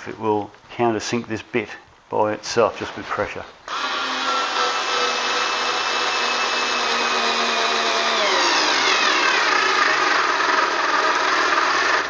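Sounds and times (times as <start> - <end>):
electric screwdriver motor whine: 3.7 - 12.0.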